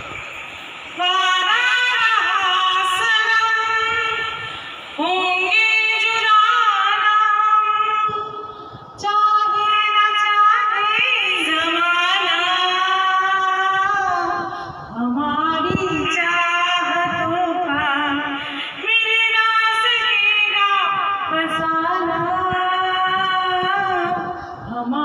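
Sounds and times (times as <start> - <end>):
woman singing into microphone: 1.0 - 25.0.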